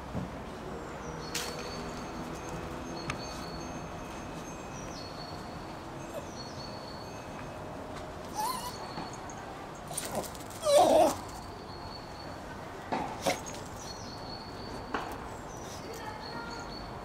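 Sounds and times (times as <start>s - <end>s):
outdoor background noise: 0.0s - 17.0s
small birds chirping: 13.1s - 17.0s.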